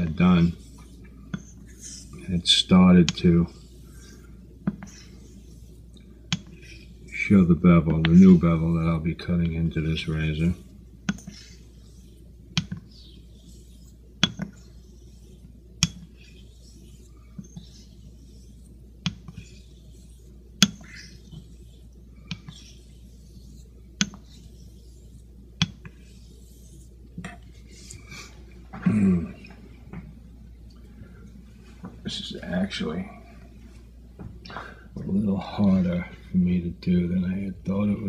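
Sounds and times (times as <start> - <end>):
razor swishing on whetstone: 0.0 - 28.6.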